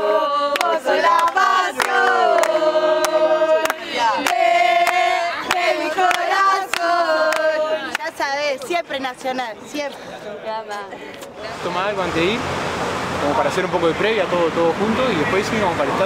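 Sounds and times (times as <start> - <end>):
group singing a chant: 0.0 - 8.4
people clapping in time: 0.5 - 8.2.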